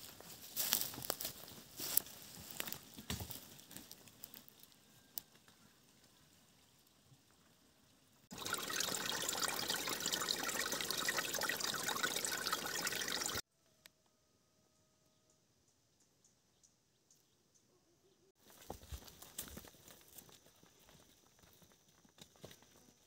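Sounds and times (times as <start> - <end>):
running water: 8.3 - 13.4.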